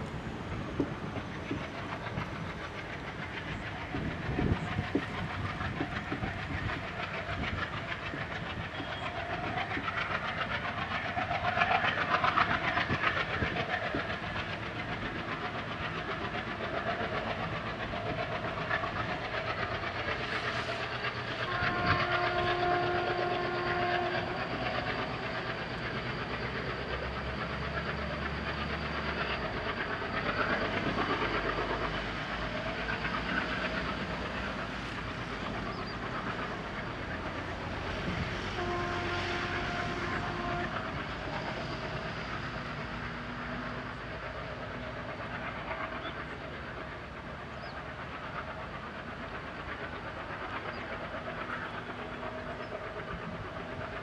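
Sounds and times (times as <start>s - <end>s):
diesel locomotive engine chugging: 0.0s - 54.0s
locomotive horn blast: 21.5s - 24.3s, 38.6s - 40.8s.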